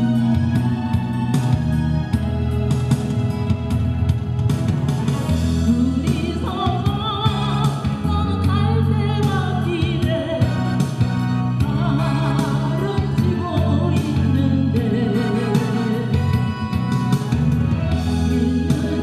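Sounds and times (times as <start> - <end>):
instrumental accompaniment: 0.0 - 19.0
woman singing with vibrato: 5.6 - 17.0, 17.9 - 19.0.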